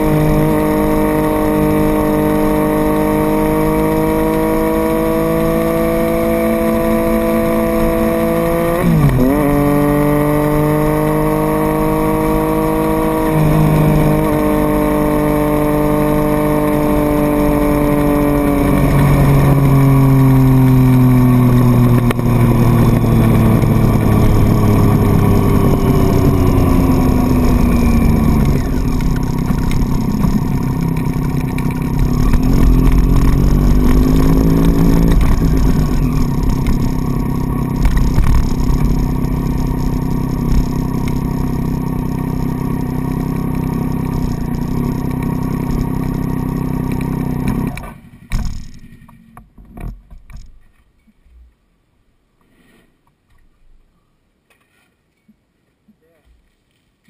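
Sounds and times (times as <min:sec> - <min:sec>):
motorcycle engine idling: 0:18.6 - 0:47.5.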